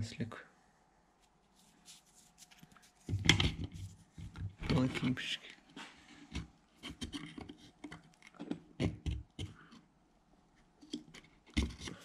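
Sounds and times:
clicks and knocks handling metal parts: 10.8s - 12.0s.

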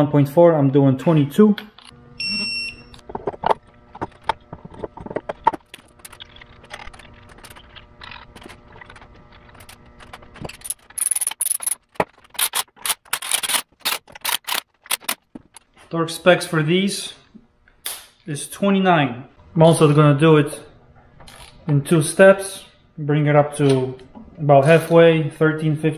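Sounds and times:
hand tool ratchet clicks: 12.4s - 15.2s.

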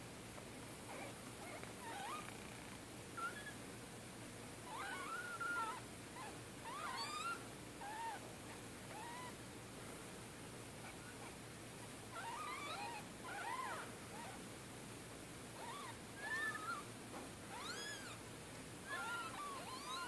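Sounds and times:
kittens mewing: 17.5s - 18.2s, 18.9s - 20.0s.

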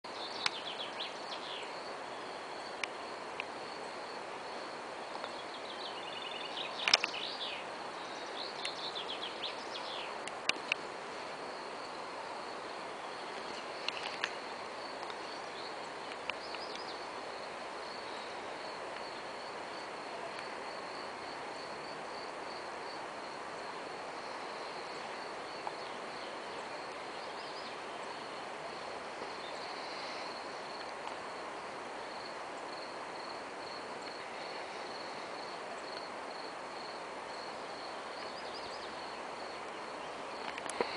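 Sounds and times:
bird chirps: 0.1s - 1.8s, 5.2s - 10.2s
sharp click: 6.8s - 7.2s.

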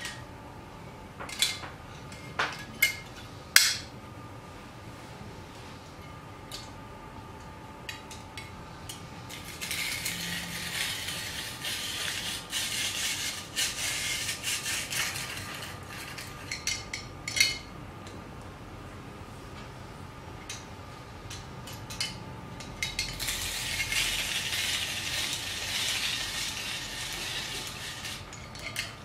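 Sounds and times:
grater rasping carrot: 9.4s - 16.1s, 23.2s - 28.3s.

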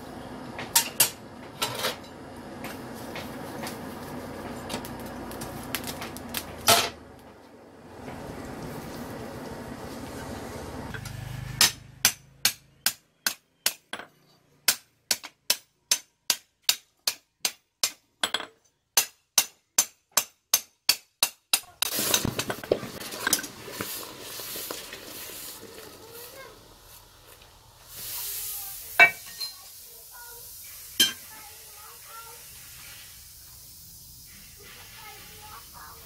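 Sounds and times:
forge fire roaring: 2.2s - 11.0s
hammer striking metal on anvil: 10.9s - 14.1s, 29.0s - 29.5s
hot steel hissing in water: 21.8s - 36.0s.

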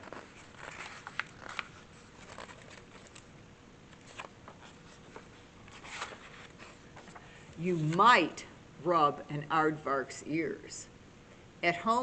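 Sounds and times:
book pages turning: 0.0s - 3.3s, 3.9s - 8.1s.

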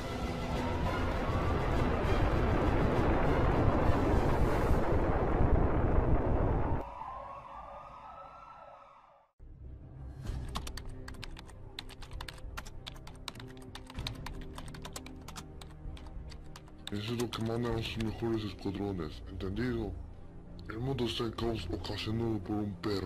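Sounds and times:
low background music: 0.0s - 5.4s, 9.4s - 23.0s
loud rumbling explosion: 0.7s - 6.8s
computer keyboard typing: 10.5s - 18.2s.

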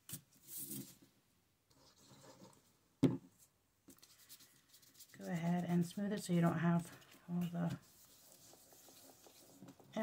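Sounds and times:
paper rustling and rubbing: 4.0s - 10.0s.

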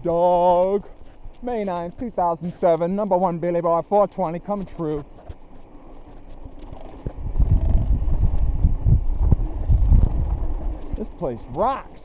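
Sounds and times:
bike knocking and rattling: 0.0s - 12.0s
wind buffeting microphone: 4.4s - 12.0s.

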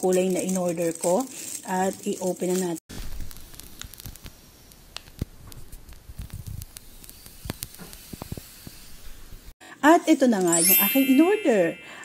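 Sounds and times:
wrapper rustling and crinkling: 0.0s - 8.8s.

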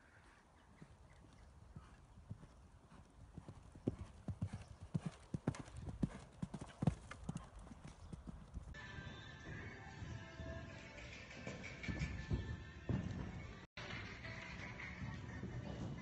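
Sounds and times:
horse hoofbeats on sand: 0.8s - 16.0s
music: 8.8s - 16.0s.

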